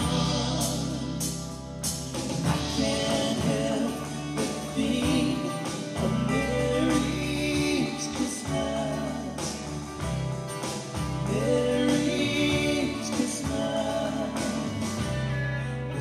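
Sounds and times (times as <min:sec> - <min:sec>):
man singing: 0:00.0 - 0:01.4, 0:02.3 - 0:09.7, 0:11.2 - 0:15.0
band playing a worship song: 0:00.0 - 0:16.0.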